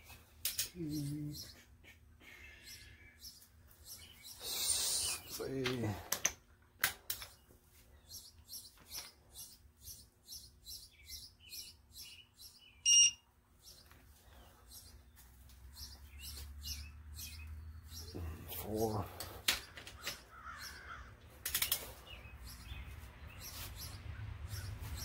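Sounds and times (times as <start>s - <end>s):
short high chirps: 12.8s - 13.2s
torque wrench electronic beep: 12.8s - 13.2s.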